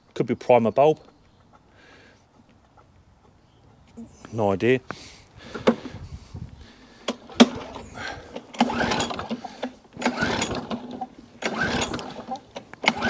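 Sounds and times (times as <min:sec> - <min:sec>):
mower engine cranking on recoil starter: 0:05.4 - 0:06.0, 0:06.6 - 0:13.0.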